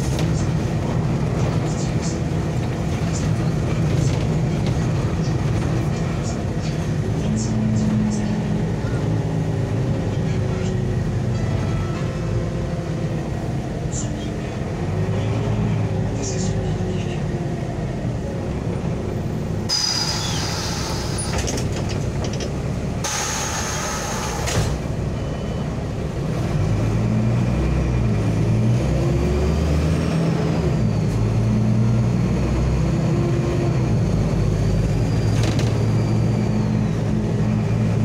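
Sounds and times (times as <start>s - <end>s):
bus diesel engine: 0.0s - 38.0s
compressed air hissing from brakes: 19.7s - 21.4s, 23.0s - 24.7s.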